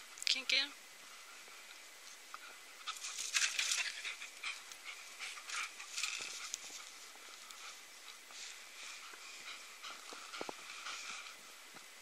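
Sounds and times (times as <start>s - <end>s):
dog panting and snuffling: 2.4s - 11.5s.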